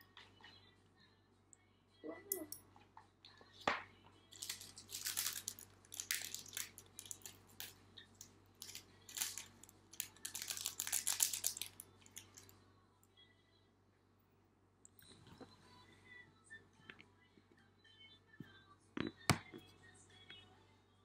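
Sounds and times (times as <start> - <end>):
plastic sachet crinkling: 4.3 - 7.8, 8.6 - 12.5.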